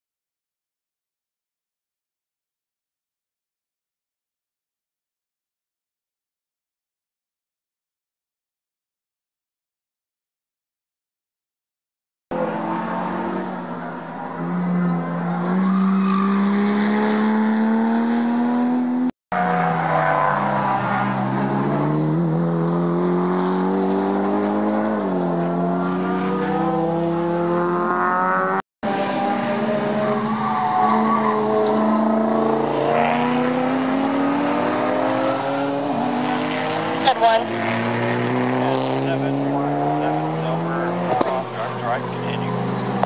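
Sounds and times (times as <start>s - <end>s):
racing car engines accelerating: 12.3s - 43.0s.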